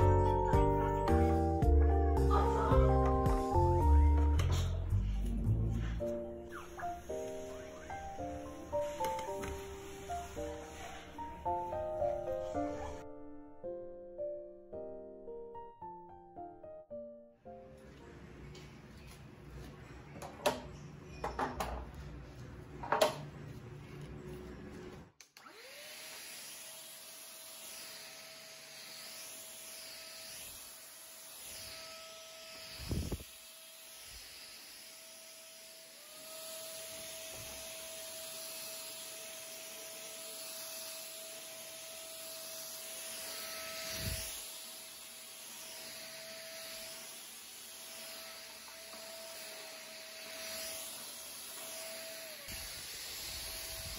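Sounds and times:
vacuum motor whining: 0:25.4 - 0:53.9.

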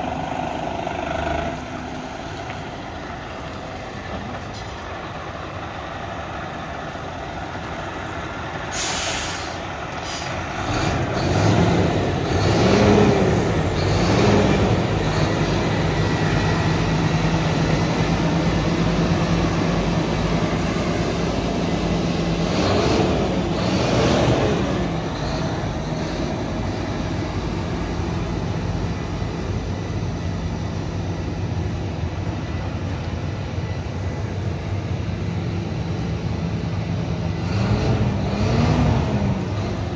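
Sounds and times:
truck diesel engine running: 0:00.0 - 0:39.9
air brake hiss: 0:04.5 - 0:05.0, 0:08.7 - 0:10.4.

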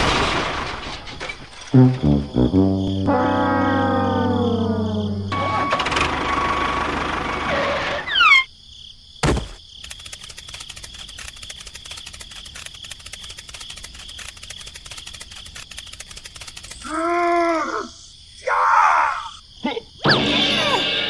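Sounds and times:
crickets chirping: 0:01.0 - 0:21.0
thud: 0:09.2 - 0:09.6.

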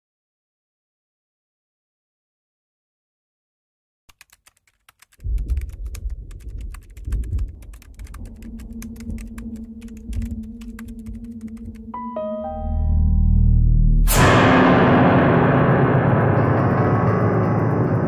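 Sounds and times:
keyboard keystroke clicks: 0:04.1 - 0:12.0
low rumbling drone: 0:05.4 - 0:18.0.

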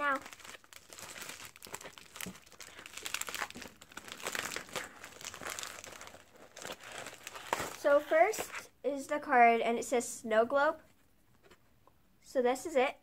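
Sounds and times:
plastic mailer crinkling: 0:00.0 - 0:08.5.

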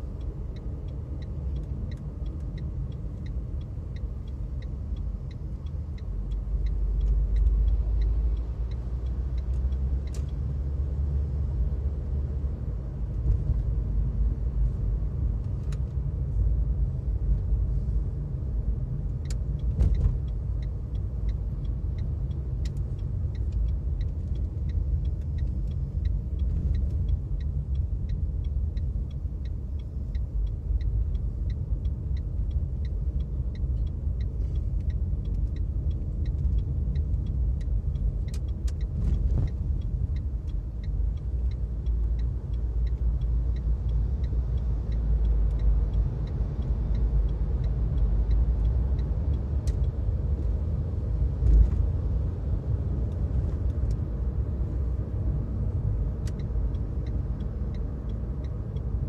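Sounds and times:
car interior road rumble: 0:00.0 - 0:59.0
light regular ticking: 0:00.0 - 0:59.0.

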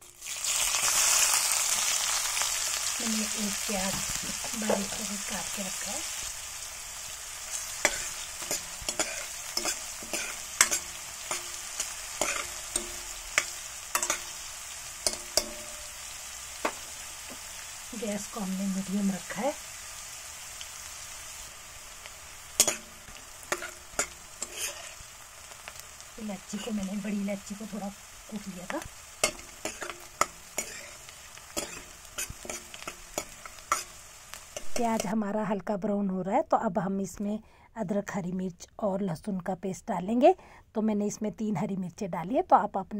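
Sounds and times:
onions and spices sizzling in oil: 0:00.0 - 0:42.9
ladle scraping metal pan: 0:07.8 - 0:14.4, 0:22.6 - 0:25.0, 0:29.2 - 0:34.0.

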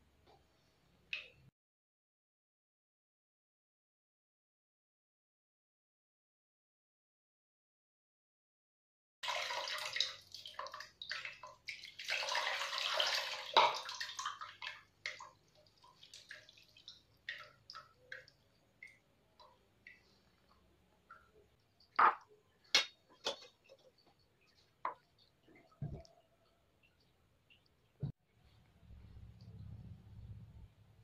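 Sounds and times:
water dripping: 0:00.2 - 0:01.5, 0:09.2 - 0:28.2
water pouring and splashing: 0:09.2 - 0:20.2.

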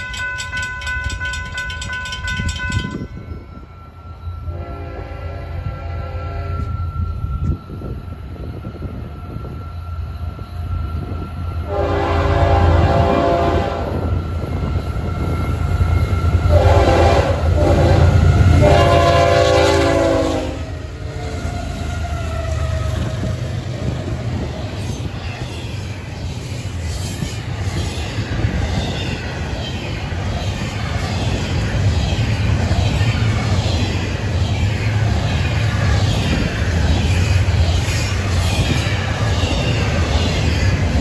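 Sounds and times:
freight train rumbling: 0:00.0 - 0:41.0
train horn blasts: 0:04.4 - 0:06.9, 0:11.6 - 0:14.1, 0:16.4 - 0:23.2.

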